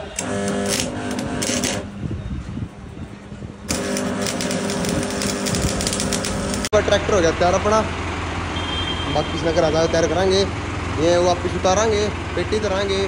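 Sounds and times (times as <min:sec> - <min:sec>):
tractor engine running: 0:03.7 - 0:08.5.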